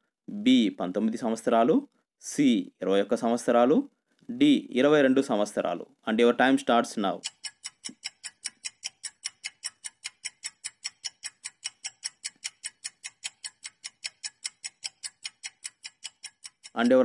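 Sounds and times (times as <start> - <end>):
fast clock-like ticking: 7.1 - 17.0.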